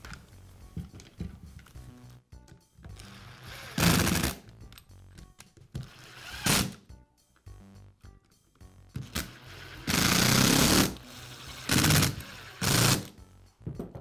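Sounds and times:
power screwdriver driving screws: 9.0s - 13.1s.

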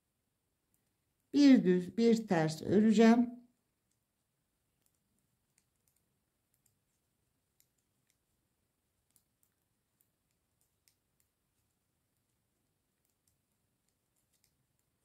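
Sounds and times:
knitting needles clicking: 4.7s - 15.0s.

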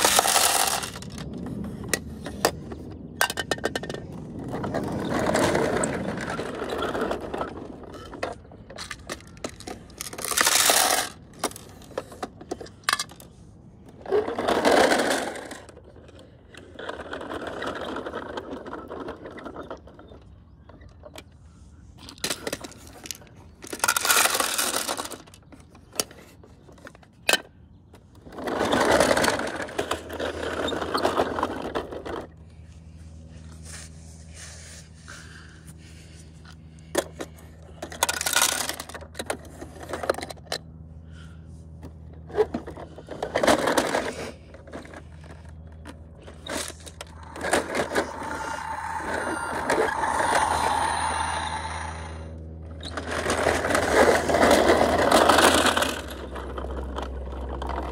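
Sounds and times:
plastic toys clattering: 0.0s - 20.3s, 22.0s - 32.4s, 36.9s - 40.6s, 41.8s - 57.9s
toy wheels scraping on concrete: 0.0s - 20.6s, 21.2s - 27.5s, 28.2s - 40.6s, 42.2s - 57.9s
steady low hum: 0.0s - 57.9s.

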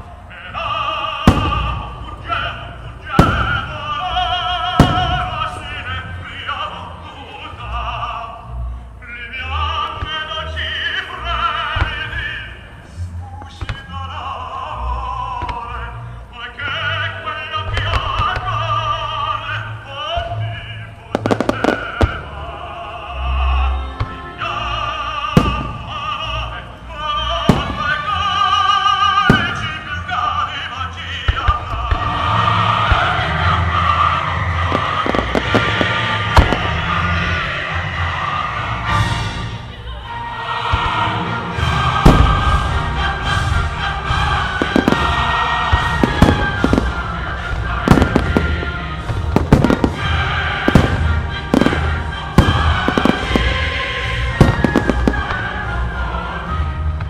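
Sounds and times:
operatic singing with orchestra: 0.0s - 57.0s
firework crack: 0.4s - 7.9s, 9.5s - 39.8s, 40.6s - 57.0s
low booms of shells: 1.2s - 6.4s, 25.4s - 26.3s, 27.4s - 28.3s, 29.1s - 30.3s, 34.5s - 37.5s, 42.0s - 55.6s.

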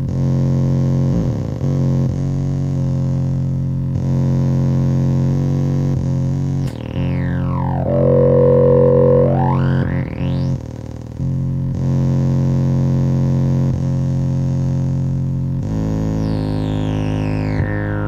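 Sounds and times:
synthesizer tone gliding in pitch: 6.7s - 10.6s
distorted synthesizer drone: 6.7s - 10.7s.

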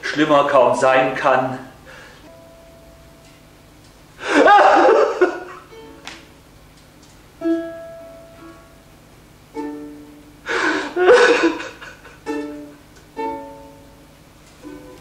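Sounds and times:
sparse plucked instrumental notes: 2.3s - 4.0s, 5.5s - 6.4s, 7.3s - 10.4s, 12.2s - 15.0s.

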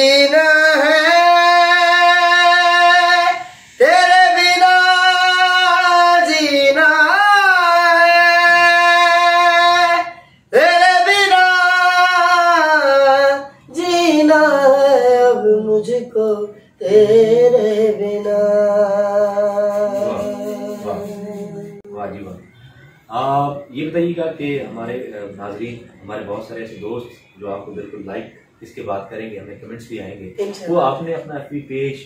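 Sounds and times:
man singing in a high voice: 0.0s - 22.0s.

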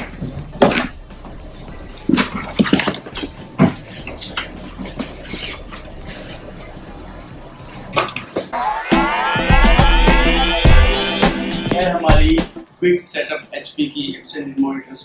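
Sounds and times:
music: 0.0s - 2.5s, 8.5s - 15.0s.

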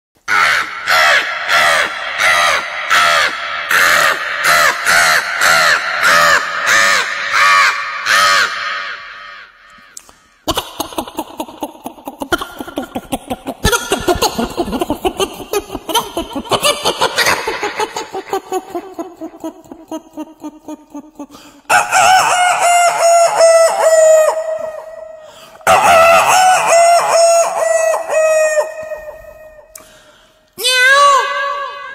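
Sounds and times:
man imitating crow caws: 0.3s - 10.0s.

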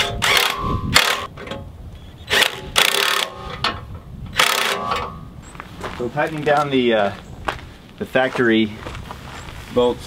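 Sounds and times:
impact wrench whining and hammering: 0.0s - 5.3s.

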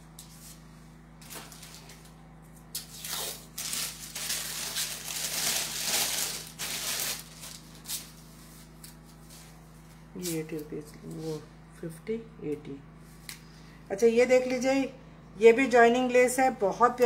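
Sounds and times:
faint steady hum: 0.0s - 17.0s
rustling and crinkling: 0.2s - 11.4s.

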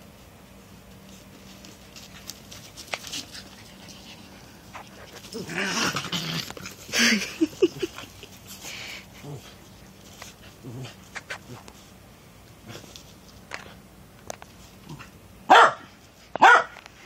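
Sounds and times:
dog growling and huffing: 3.2s - 11.7s.

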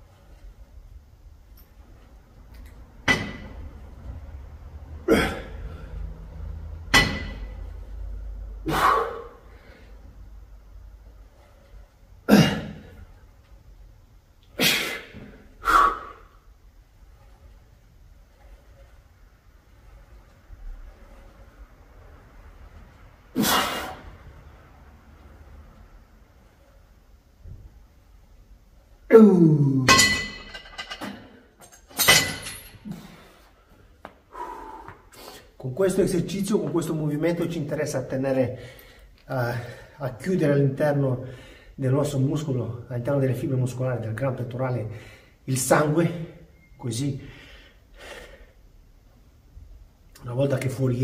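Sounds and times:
metal clanks of weights: 3.0s - 3.6s, 6.9s - 7.6s, 29.9s - 32.8s
man groaning with effort: 5.0s - 5.7s, 29.1s - 29.9s
man exhaling forcefully: 8.6s - 9.9s, 14.6s - 16.4s, 23.4s - 24.1s, 34.3s - 35.4s.

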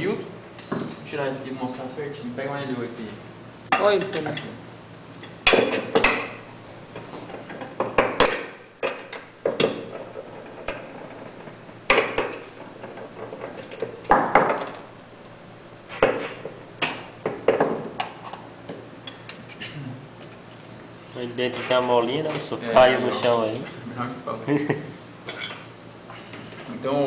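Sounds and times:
metal tools clinking on table: 0.6s - 1.2s, 3.7s - 6.4s.

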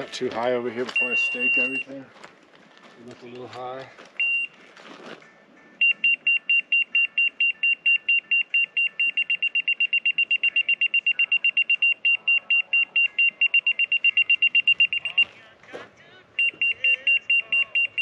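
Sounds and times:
rapid high electronic beeping: 1.0s - 1.9s, 5.8s - 15.3s, 16.4s - 18.0s.

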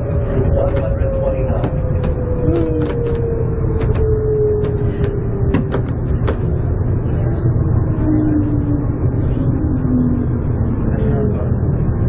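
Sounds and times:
sharp clicks and rattles: 0.0s - 6.6s
shuttle train rumbling: 0.0s - 12.0s.

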